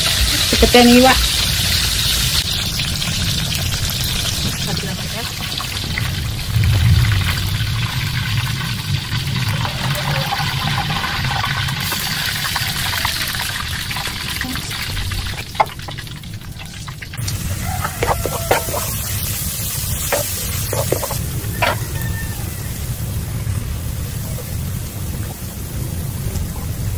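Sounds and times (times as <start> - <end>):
fish deep-frying in oil: 0.0 - 26.9
low hum: 6.0 - 9.9
spatula knocking on a pan: 17.9 - 18.9, 20.1 - 21.8.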